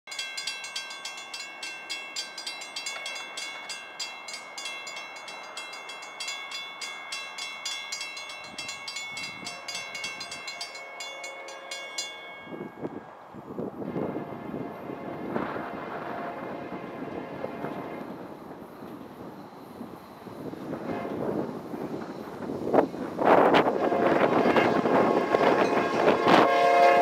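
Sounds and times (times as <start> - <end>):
railroad crossing bell ringing: 0.1 - 13.2, 17.6 - 27.0
distant locomotive horn: 9.4 - 13.0, 13.8 - 18.3, 20.6 - 21.5, 23.4 - 27.0.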